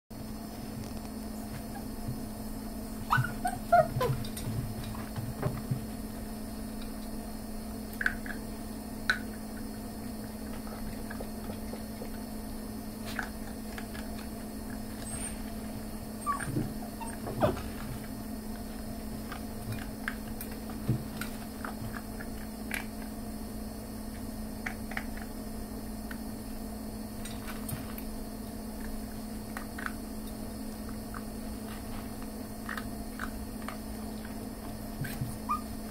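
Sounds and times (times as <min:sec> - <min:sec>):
steady low hum: 0:00.1 - 0:35.9
puppies crunching kibble: 0:00.6 - 0:23.3, 0:24.1 - 0:26.2, 0:27.2 - 0:35.9
puppy whimpers: 0:03.0 - 0:04.4, 0:16.2 - 0:17.8, 0:35.0 - 0:35.9.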